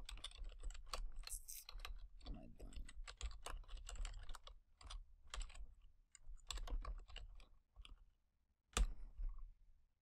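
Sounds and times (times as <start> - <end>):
typing on a computer keyboard: 0.0 - 8.0.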